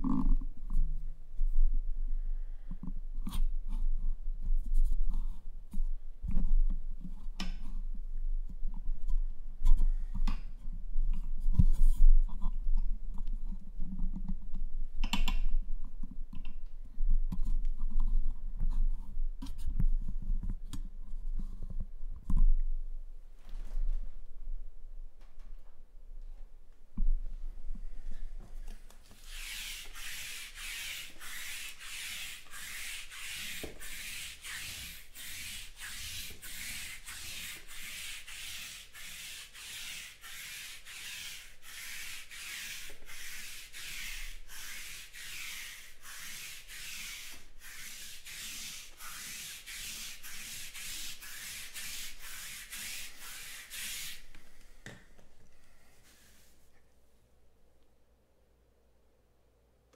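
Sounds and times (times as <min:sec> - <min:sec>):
lint roller rasping on cloth: 0:29.1 - 0:54.4.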